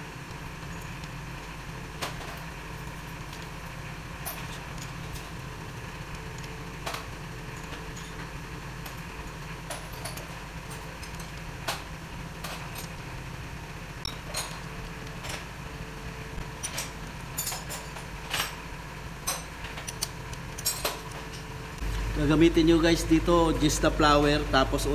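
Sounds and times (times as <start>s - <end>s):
low hum: 0.0s - 24.9s
metallic clicks of bolts threading: 19.3s - 21.4s.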